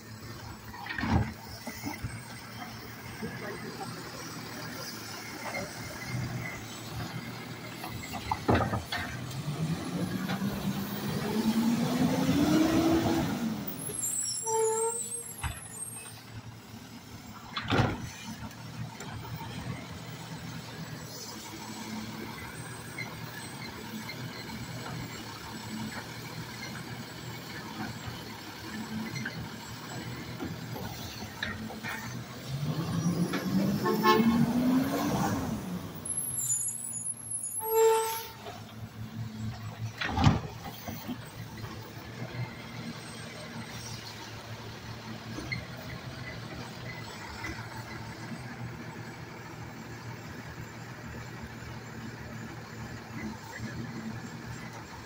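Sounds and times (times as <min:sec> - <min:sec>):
diesel engine revving: 0:00.0 - 0:14.4, 0:18.0 - 0:36.6.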